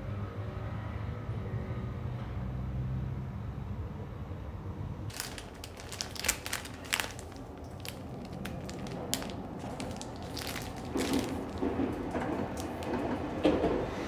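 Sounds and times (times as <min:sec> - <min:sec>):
plastic packaging crinkling: 0:05.1 - 0:13.3.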